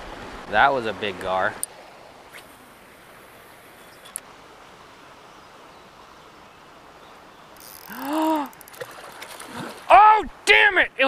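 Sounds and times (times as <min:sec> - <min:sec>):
fishing reel cranking: 0:07.6 - 0:09.0
fish splash: 0:07.7 - 0:09.9
man's startled exclamation: 0:07.9 - 0:08.6.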